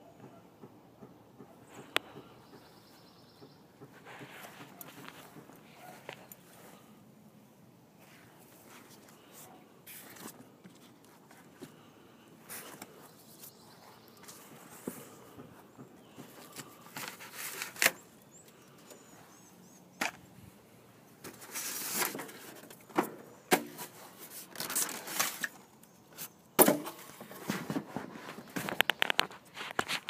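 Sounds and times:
sharp knocks and cracks: 0:26.6 - 0:27.8.

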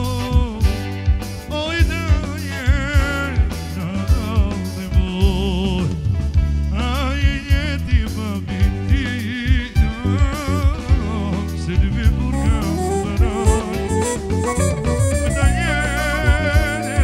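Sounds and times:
man singing into microphone: 0:00.0 - 0:00.8, 0:01.5 - 0:06.0, 0:06.7 - 0:17.0
keyboard: 0:00.0 - 0:17.0
steady drum beat: 0:00.0 - 0:17.0.

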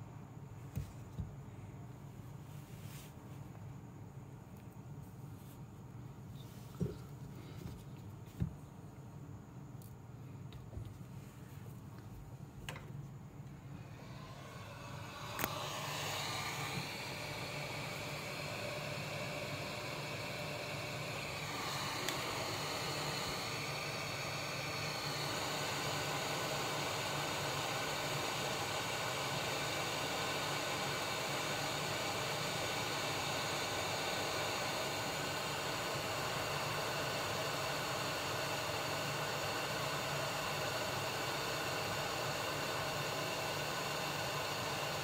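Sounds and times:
hot air gun hissing: 0:13.8 - 0:45.0.

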